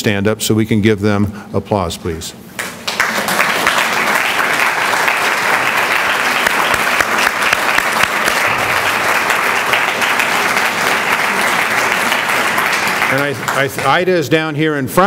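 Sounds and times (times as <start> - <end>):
audience applauding: 2.6 - 14.2.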